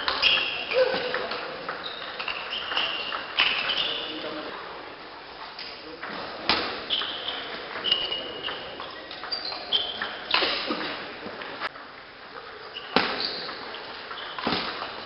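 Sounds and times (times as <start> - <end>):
shoes squeaking on floor: 0.0 - 4.5, 6.1 - 11.1, 12.5 - 15.0.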